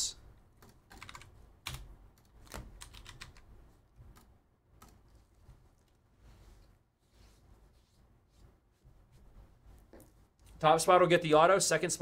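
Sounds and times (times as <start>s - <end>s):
typing on computer keyboard: 0.6s - 3.5s.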